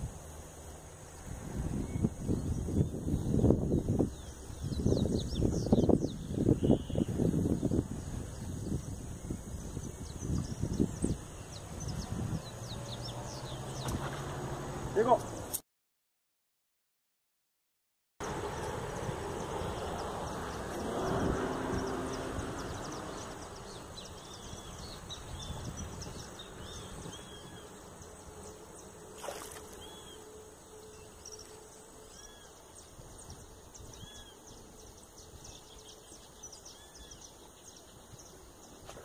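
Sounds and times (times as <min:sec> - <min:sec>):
bird chirping: 0:01.8 - 0:07.8, 0:08.4 - 0:14.2, 0:19.4 - 0:39.0.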